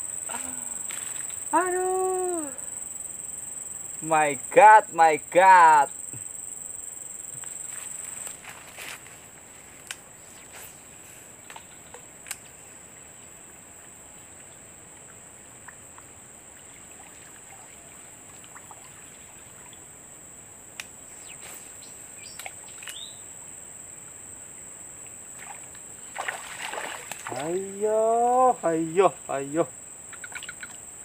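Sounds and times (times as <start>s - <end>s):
insects droning: 0.0s - 31.0s
faint clicks: 30.1s - 30.8s.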